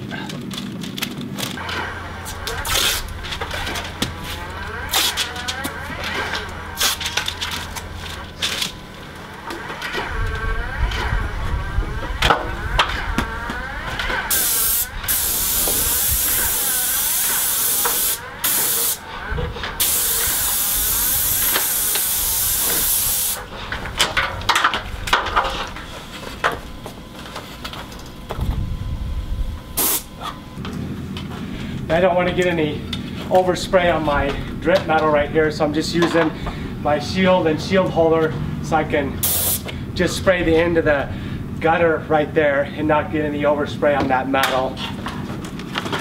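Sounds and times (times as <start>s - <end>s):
paint spray gun hissing: 14.3s - 19.0s, 19.8s - 23.5s, 29.8s - 30.1s, 39.2s - 39.7s.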